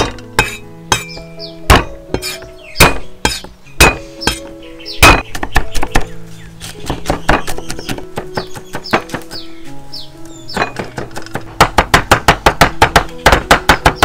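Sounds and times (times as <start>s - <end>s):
background music: 0.0s - 14.0s
knife chopping on board: 5.0s - 9.4s, 10.6s - 14.0s.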